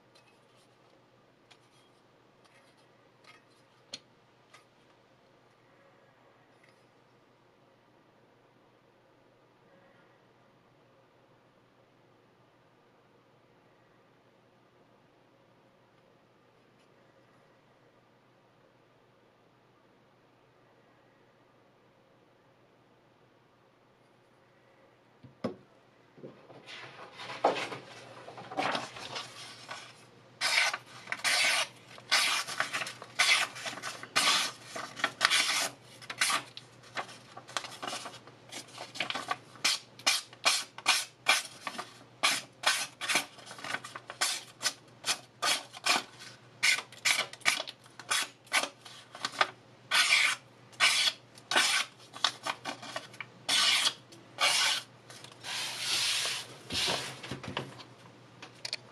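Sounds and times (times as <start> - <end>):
cleaver slicing paper: 28.8 - 57.0.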